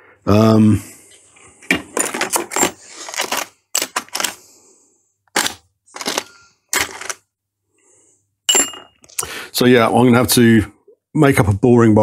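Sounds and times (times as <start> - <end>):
small metal tools clinking: 8.5 - 9.0.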